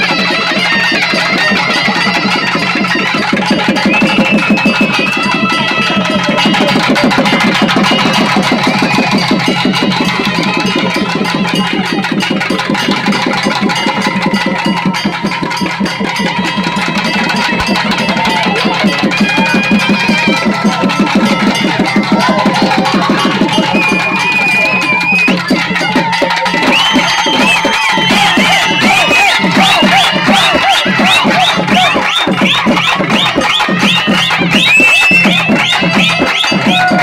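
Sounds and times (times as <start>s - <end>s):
fast drumming: 0.0s - 37.0s
high wavering melody: 13.8s - 37.0s.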